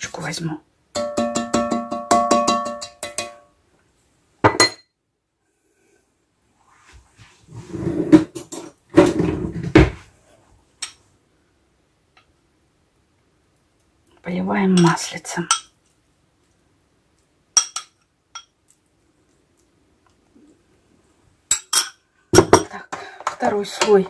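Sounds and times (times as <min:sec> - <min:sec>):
spatula tapping metal pot: 0:00.9 - 0:03.5.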